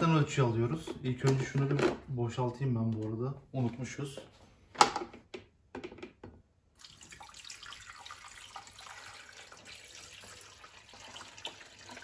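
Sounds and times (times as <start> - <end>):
water pouring into tank: 6.7 - 12.0.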